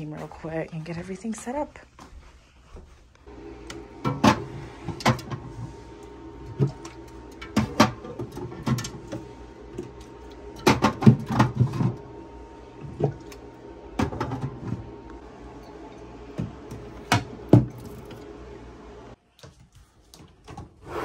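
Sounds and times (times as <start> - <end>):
steady low hum: 2.7 - 19.2.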